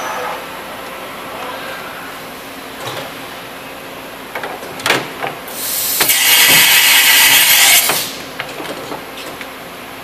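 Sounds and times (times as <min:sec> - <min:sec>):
loud high hiss: 0:05.5 - 0:08.2.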